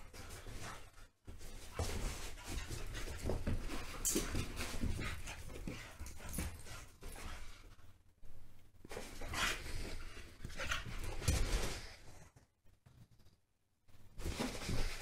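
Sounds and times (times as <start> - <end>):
paws scuffling on rug: 0.0 - 7.8
dogs play-fighting: 0.0 - 7.9, 8.8 - 12.3.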